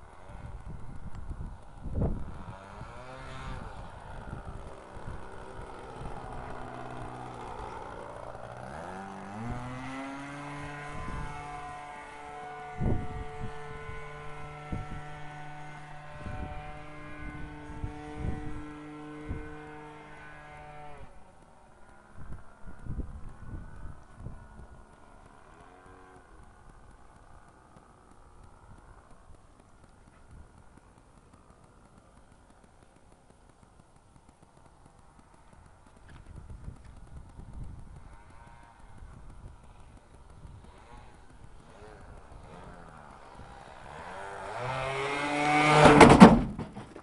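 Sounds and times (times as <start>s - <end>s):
model airplane engine buzzing: 0.0s - 47.0s
thumps on microphone: 45.8s - 47.0s.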